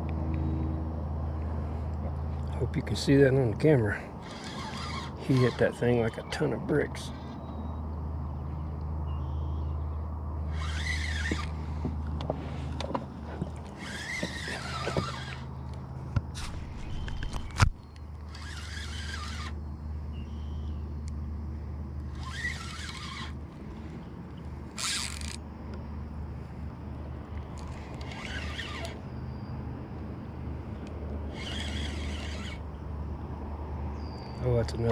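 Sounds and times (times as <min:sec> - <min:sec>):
steady low hum: 0:00.0 - 0:34.9
spinning reel whirring: 0:04.2 - 0:05.8, 0:10.5 - 0:11.6, 0:13.8 - 0:15.6, 0:18.2 - 0:19.6, 0:22.1 - 0:23.4, 0:24.7 - 0:25.4, 0:27.6 - 0:29.0, 0:31.3 - 0:32.6.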